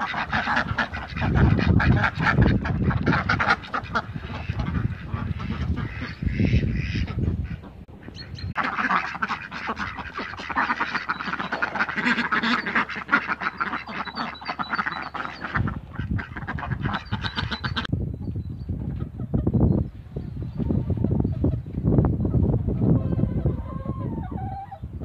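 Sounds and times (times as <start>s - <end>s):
ducks quacking: 0.0s - 17.9s.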